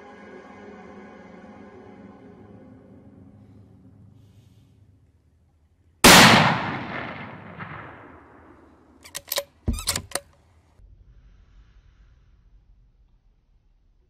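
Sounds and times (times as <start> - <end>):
gunshot with echo: 6.0 - 8.5
sharp clicks: 9.0 - 10.4.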